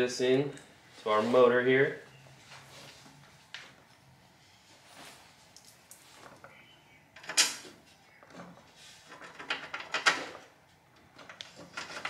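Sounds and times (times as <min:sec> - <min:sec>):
plastic parts clattering: 0:11.2 - 0:12.0.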